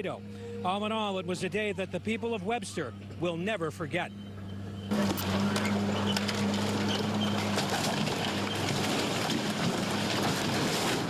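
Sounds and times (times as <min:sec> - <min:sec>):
excavator engine humming: 0:00.0 - 0:11.0
timber and brick crashing down: 0:05.0 - 0:11.0.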